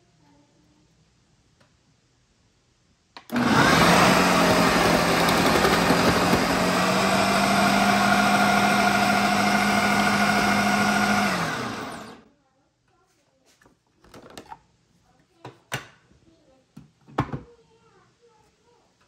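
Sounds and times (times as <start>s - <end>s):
blender motor humming: 3.2s - 12.2s
disc shredding beetroot: 3.3s - 12.2s.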